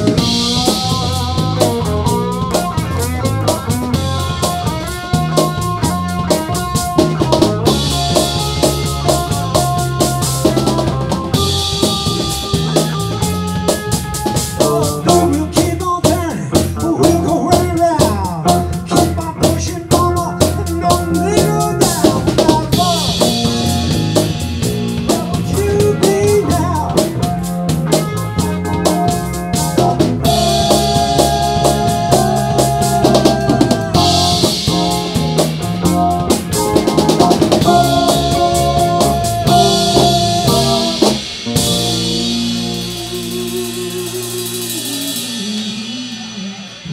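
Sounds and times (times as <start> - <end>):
bass guitar: 0.0 - 46.9
drum kit beat: 0.0 - 46.9
electric guitar: 0.0 - 46.9
live rock band playing: 0.0 - 46.9
cymbals: 27.8 - 46.9
long high held note: 36.7 - 46.5.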